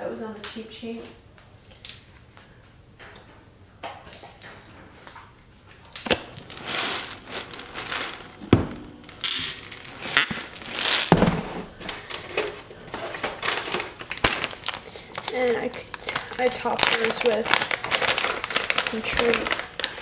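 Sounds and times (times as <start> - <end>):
kibble pouring from plastic container: 6.3 - 8.4, 9.1 - 11.5.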